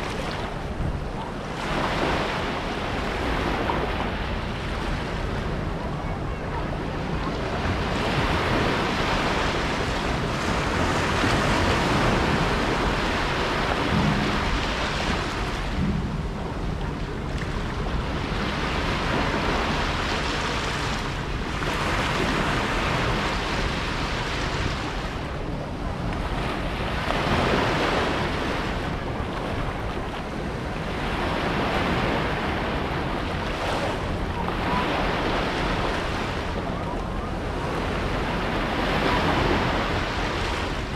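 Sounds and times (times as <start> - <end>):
small waves breaking on shore: 0.0 - 25.5, 26.1 - 40.9.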